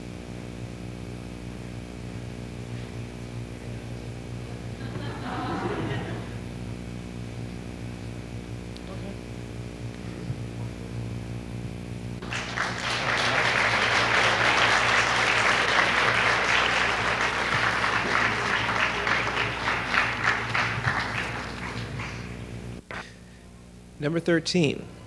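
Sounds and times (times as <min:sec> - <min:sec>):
steady low hum: 0:00.0 - 0:25.0
audience applauding: 0:12.2 - 0:23.0.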